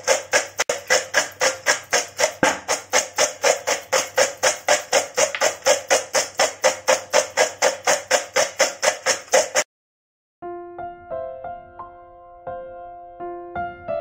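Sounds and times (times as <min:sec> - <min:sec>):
music with quick percussive beat: 0:00.0 - 0:09.6.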